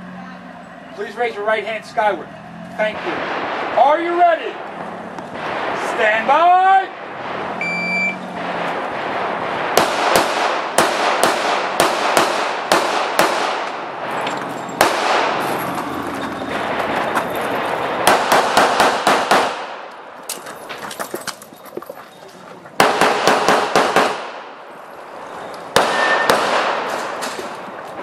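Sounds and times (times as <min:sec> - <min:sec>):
shot timer beep: 0:07.6 - 0:08.2.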